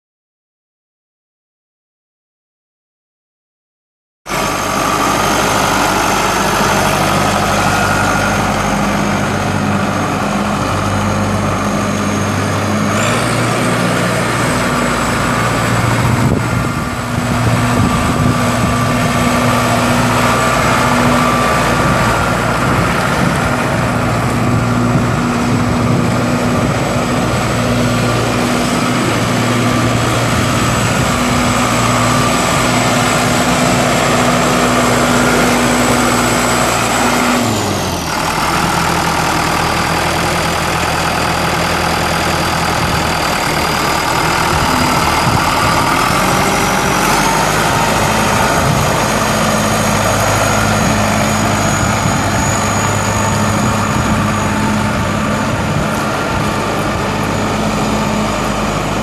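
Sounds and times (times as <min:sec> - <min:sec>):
tractor diesel engine running: 0:04.3 - 0:59.0.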